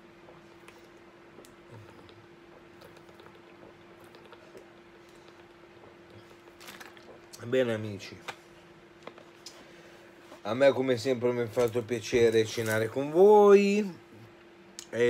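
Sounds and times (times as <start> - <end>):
faint steady hum: 0.0 - 15.0
plastic bottle crackling: 6.4 - 7.4.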